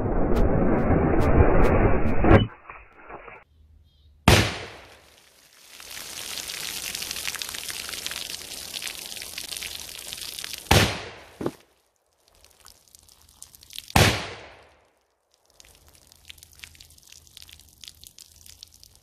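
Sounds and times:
revolver gunshot: 4.3 - 4.8, 10.7 - 11.2, 14.0 - 14.6
water pouring and splashing: 4.6 - 19.0
plastic jug bursting: 10.5 - 11.6, 13.9 - 14.7.

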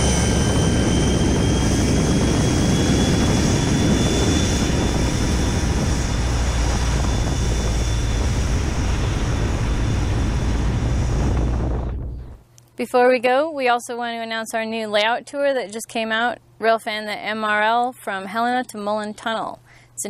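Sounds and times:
diesel locomotives rumbling: 0.0 - 12.4
thin high whine: 0.0 - 12.5.

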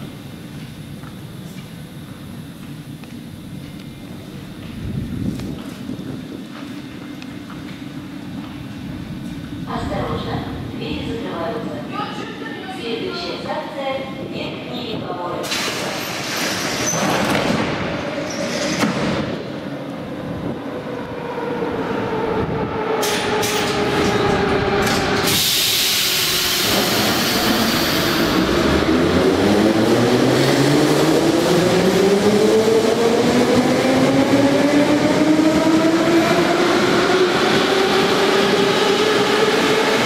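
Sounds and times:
train pulling away: 15.4 - 40.0
sharp hiss of air: 25.2 - 28.3.

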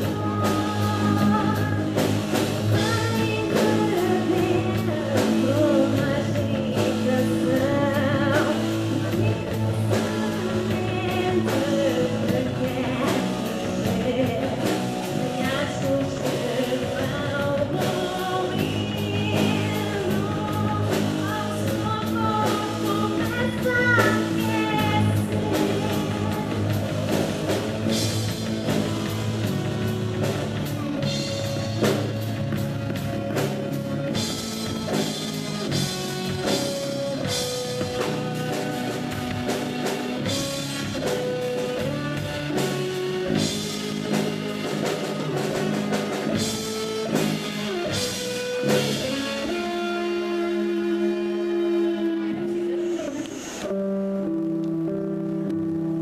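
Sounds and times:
woman singing: 0.0 - 27.3
drum kit: 0.0 - 56.0
electric guitar: 0.0 - 56.0
keyboard: 0.0 - 56.0.

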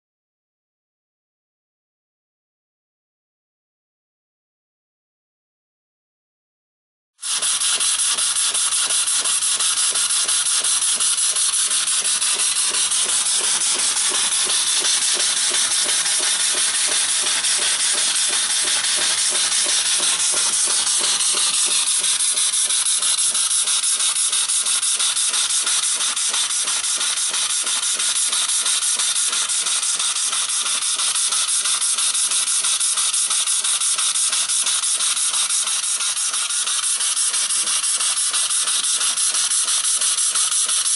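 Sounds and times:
steam engine puffing: 7.2 - 31.0.

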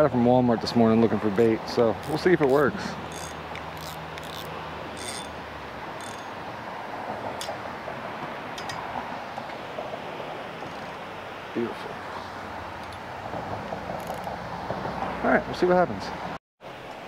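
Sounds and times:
steady rushing outdoor noise: 0.0 - 17.0
fishing reel clicks: 2.0 - 5.3, 6.0 - 6.3.

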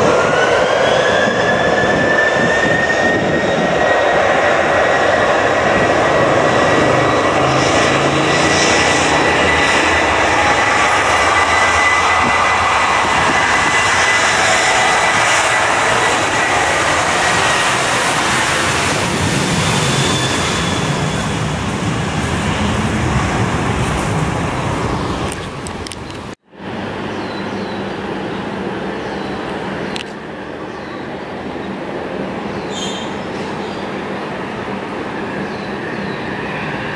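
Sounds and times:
airliner engines roaring: 0.0 - 36.9.

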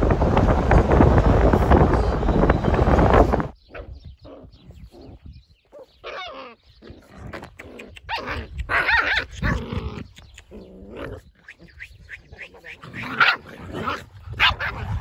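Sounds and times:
puppies yapping and growling: 3.7 - 15.0.

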